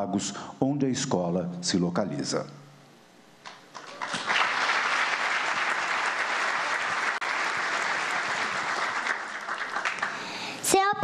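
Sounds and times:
audience applause: 3.7 - 10.5.

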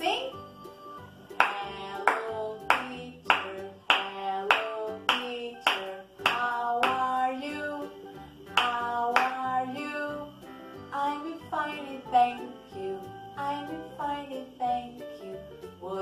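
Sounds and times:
children's song singing: 1.2 - 16.0
hand claps: 1.3 - 7.1, 8.5 - 9.4.

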